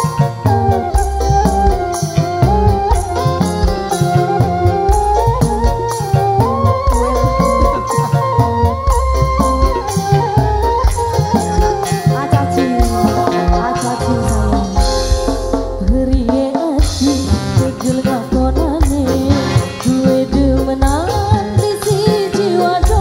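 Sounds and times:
rattling percussion: 0.0 - 23.0
steady drum beat: 0.0 - 23.0
woman singing into microphone: 11.8 - 23.0.

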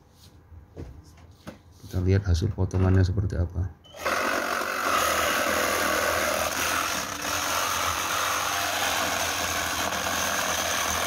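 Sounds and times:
reciprocating saw cutting metal: 3.9 - 11.0.

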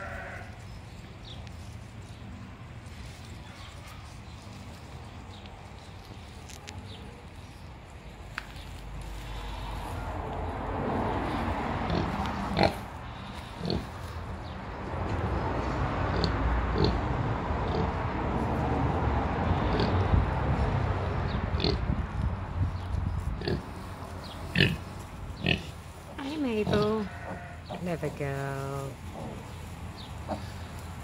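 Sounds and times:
sow grunting and snuffling: 11.8 - 14.2, 24.5 - 25.7, 26.6 - 27.8, 28.9 - 30.8.

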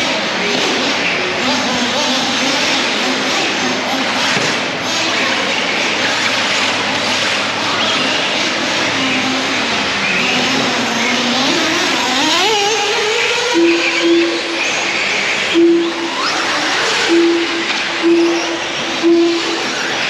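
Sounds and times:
rc car motors whining: 0.0 - 20.0
short steady tones: 13.5 - 20.0.

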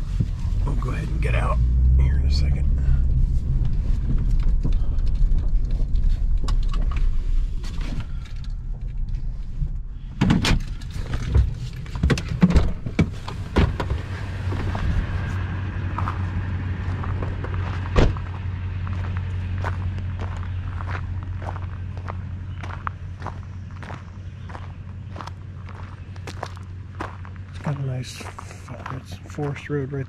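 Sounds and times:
pickup rolling over gravel: 10.7 - 30.0
car door clunks and knocks: 11.3 - 14.0, 17.9 - 18.3
loud thump: 17.9 - 18.3.

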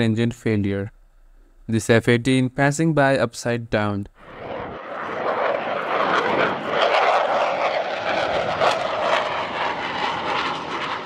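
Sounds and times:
jet engines roaring past: 4.2 - 11.0.

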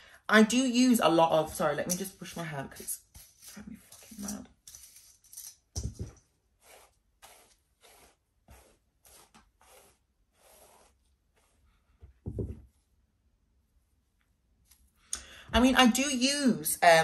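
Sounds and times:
hairbrush swishing through hair: 2.0 - 4.4, 6.6 - 11.7
knock: 12.2 - 12.7.

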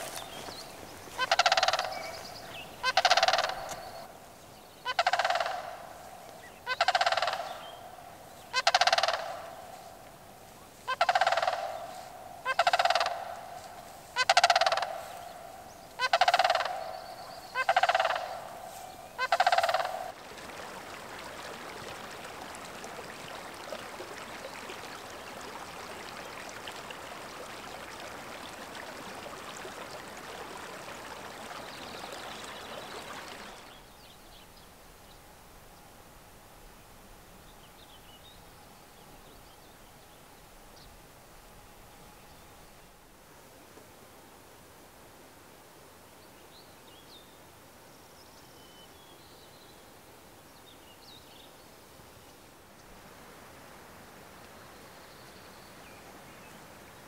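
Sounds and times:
steady water rush: 0.0 - 37.4, 51.9 - 57.0
crane calling: 1.1 - 4.2, 4.8 - 20.2.

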